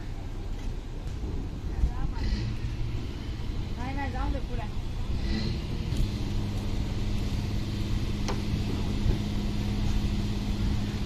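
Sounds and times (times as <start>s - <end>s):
engine rumbling: 0.0s - 11.0s.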